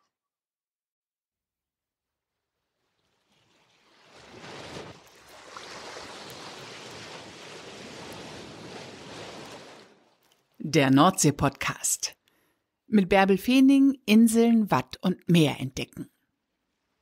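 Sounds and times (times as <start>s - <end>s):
sea waves washing in: 2.6s - 10.4s.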